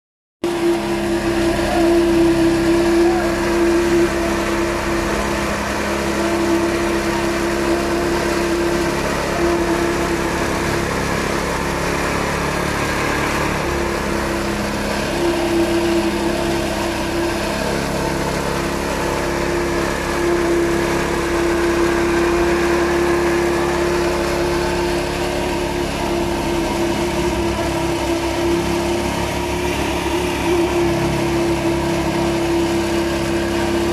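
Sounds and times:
petrol engine running steadily: 0.4s - 33.9s.

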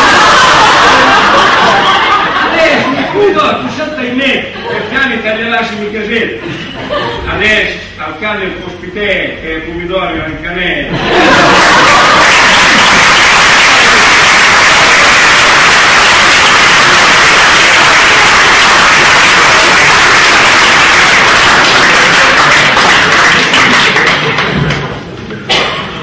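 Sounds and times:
audience applauding: 0.0s - 2.4s, 11.1s - 24.9s.

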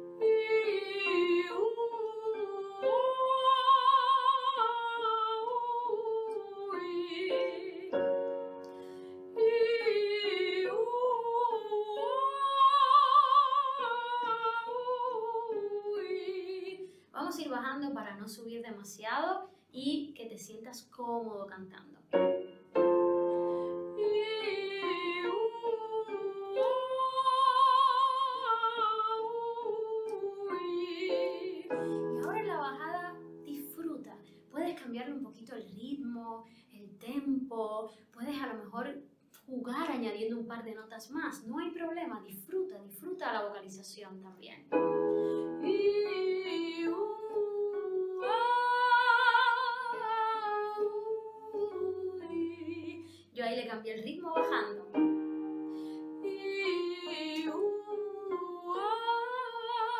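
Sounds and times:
woman singing with vibrato: 0.0s - 8.2s, 9.2s - 17.7s, 22.8s - 35.8s, 44.7s - 55.1s, 55.9s - 59.9s
piano chords: 0.0s - 15.2s, 22.1s - 34.9s, 44.7s - 53.2s, 54.2s - 59.9s.

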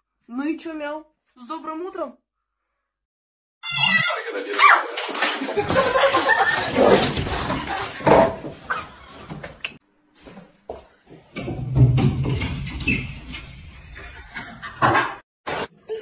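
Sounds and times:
cat crying: 3.6s - 4.2s.

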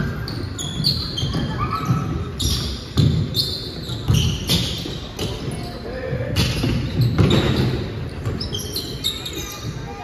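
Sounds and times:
sneakers squeaking on hardwood: 0.0s - 10.0s
basketball bouncing: 2.5s - 3.3s.

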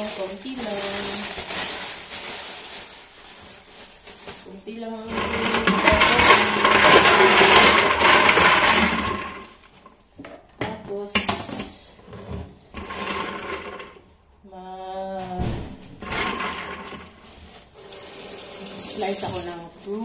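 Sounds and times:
ice cubes rattling in plastic pitcher: 0.0s - 9.7s, 12.8s - 14.0s, 16.0s - 20.0s.

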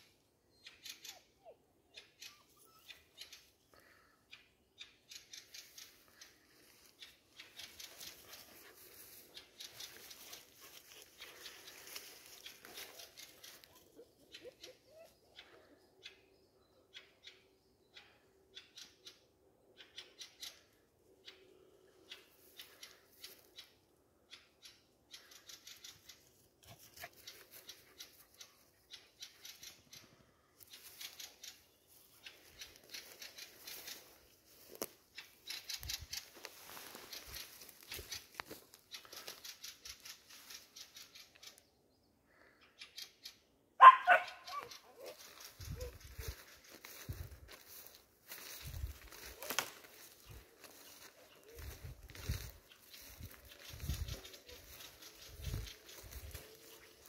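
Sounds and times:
footsteps crackling through undergrowth: 5.3s - 14.0s, 25.3s - 41.5s, 43.8s - 57.0s
puppy barking: 43.8s - 45.2s.

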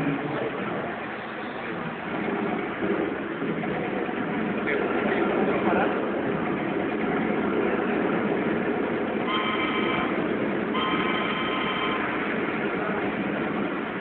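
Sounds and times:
rumble of model trains running: 0.0s - 14.0s
model train horn: 9.3s - 10.2s, 10.8s - 12.2s.

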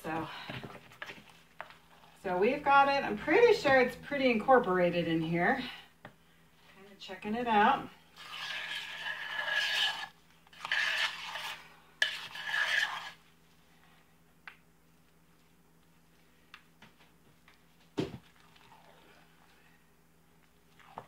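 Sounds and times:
wooden spoon scraping soap: 7.5s - 13.2s.

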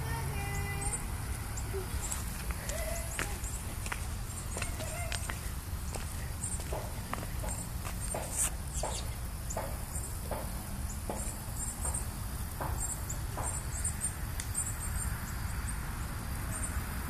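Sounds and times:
soft thuds: 3.2s - 13.6s.

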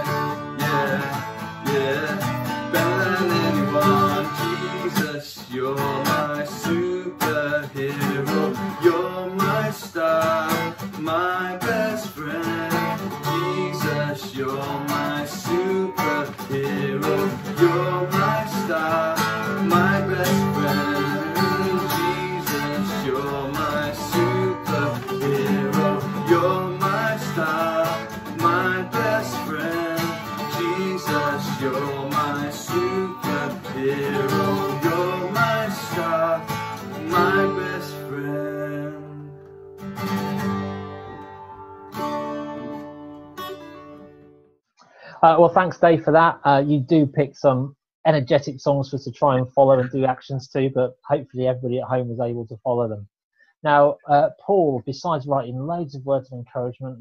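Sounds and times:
person singing: 0.0s - 39.4s
acoustic guitar strumming: 0.0s - 44.5s.

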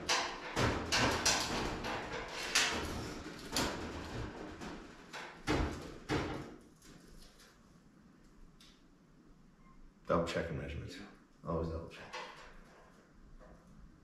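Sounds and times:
knocks and clunks of metal parts: 0.0s - 7.0s, 12.0s - 13.7s.

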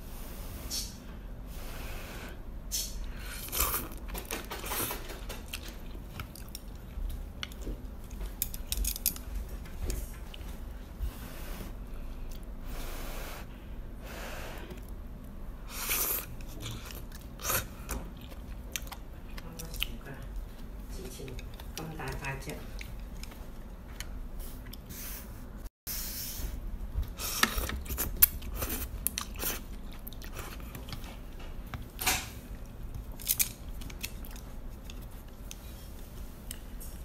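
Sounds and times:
chewing: 4.7s - 8.7s, 15.8s - 24.9s, 27.4s - 36.7s.

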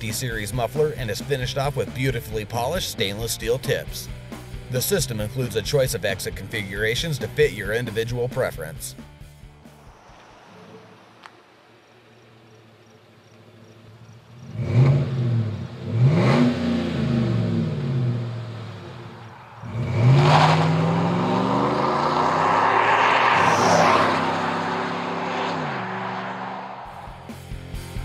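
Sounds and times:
truck engine revving: 13.8s - 28.0s.

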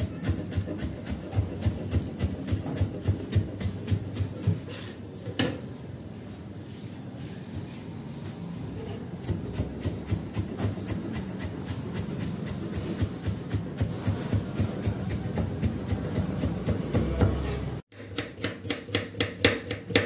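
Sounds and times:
knife chopping on wooden board: 11.9s - 20.0s.

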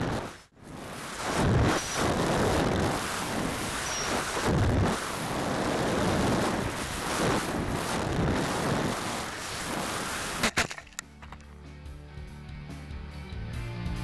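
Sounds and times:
wind rushing and buffeting: 0.0s - 11.4s.

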